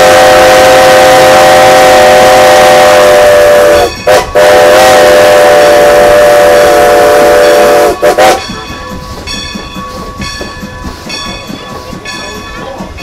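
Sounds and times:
steam whistle blast: 0:00.0 - 0:08.4
train running: 0:00.0 - 0:13.0.

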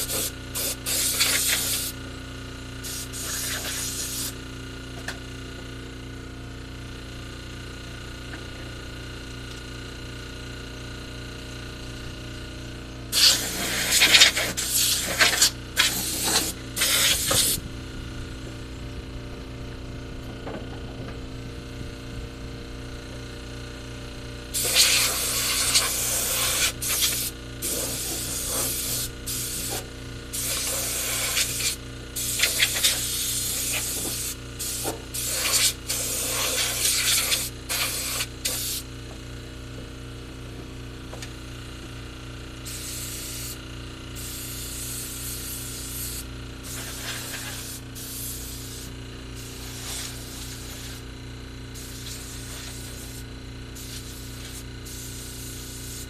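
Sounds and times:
hissing spray bursts: 0:00.0 - 0:02.0, 0:02.8 - 0:04.4, 0:13.1 - 0:17.6, 0:24.6 - 0:38.9, 0:42.6 - 0:43.6, 0:44.2 - 0:51.0, 0:51.8 - 0:53.2, 0:53.8 - 0:56.0
steady low hum: 0:00.0 - 0:56.0.

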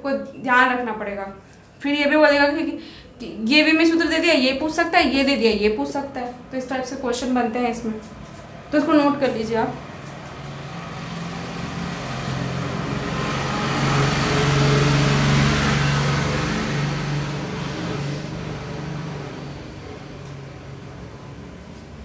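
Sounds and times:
vehicle passing by: 0:07.8 - 0:22.0.

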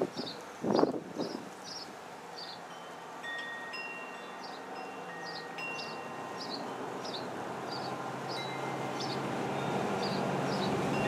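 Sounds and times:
light wind: 0:00.0 - 0:11.0
chimes ringing: 0:02.7 - 0:10.2.

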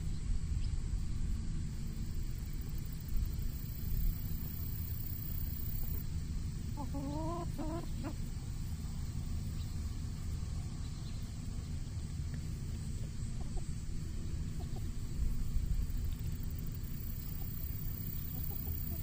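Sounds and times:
steady low rumble: 0:00.0 - 0:19.0
chickens clucking: 0:06.7 - 0:08.5, 0:12.3 - 0:19.0.

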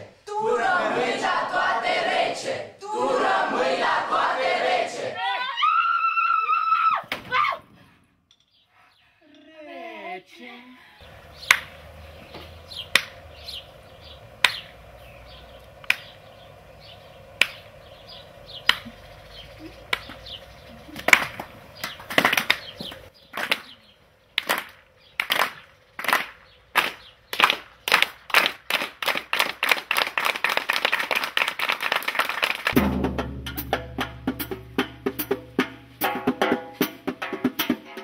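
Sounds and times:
hands clapping: 0:11.5 - 0:11.8, 0:12.9 - 0:13.2, 0:14.4 - 0:14.7, 0:15.8 - 0:16.1, 0:17.4 - 0:17.6, 0:18.7 - 0:18.9, 0:19.9 - 0:20.2, 0:21.0 - 0:23.8, 0:24.4 - 0:32.8.

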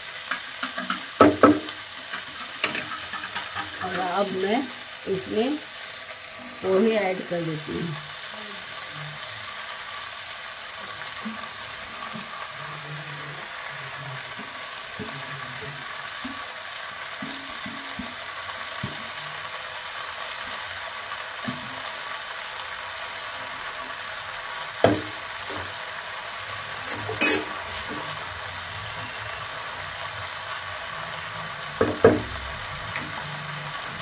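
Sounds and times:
vegetables sizzling in oil: 0:00.0 - 0:34.0
wooden spatula knocking pan: 0:00.3 - 0:04.2, 0:17.2 - 0:19.2, 0:24.8 - 0:25.8, 0:31.8 - 0:33.2.

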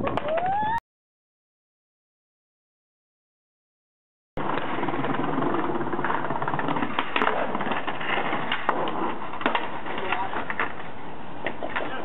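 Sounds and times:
skateboard clacks: 0:00.0 - 0:00.6, 0:04.4 - 0:12.0
skateboard wheels rumbling on paving: 0:04.4 - 0:12.0.

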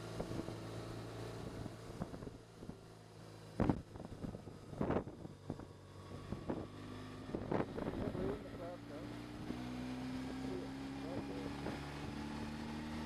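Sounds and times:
motorcycle engine cruising: 0:00.0 - 0:13.0
wind rushing over microphone: 0:03.6 - 0:08.5.

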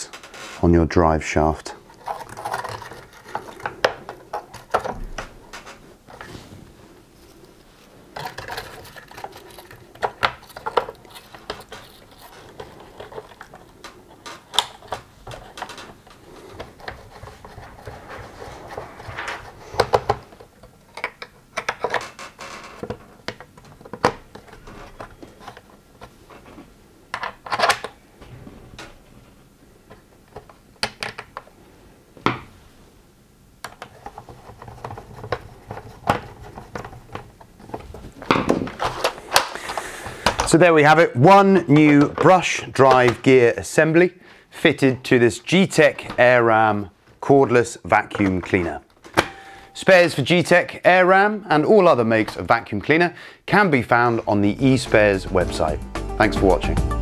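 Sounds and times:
plastic parts clicking and scraping: 0:01.8 - 0:06.3, 0:07.3 - 0:28.0, 0:33.6 - 0:41.0.

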